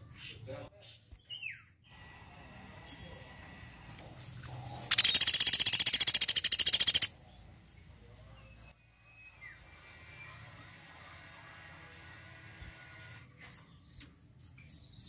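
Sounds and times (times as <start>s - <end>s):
woodpecker calling: 4.7s - 7.1s
high-pitched woodpecker trill: 4.8s - 7.1s.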